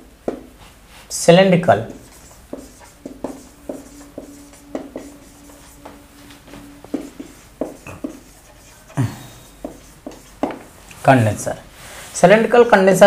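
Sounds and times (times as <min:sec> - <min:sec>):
marker writing on whiteboard: 0:00.2 - 0:10.9
faint steady tone: 0:02.0 - 0:10.0.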